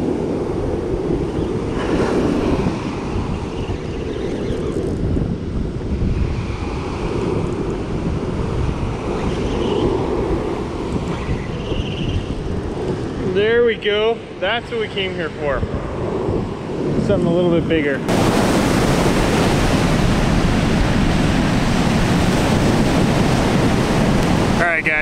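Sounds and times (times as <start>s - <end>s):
surf breaking on beach: 0.0s - 3.9s, 18.0s - 25.0s
wind buffeting microphone: 0.0s - 25.0s.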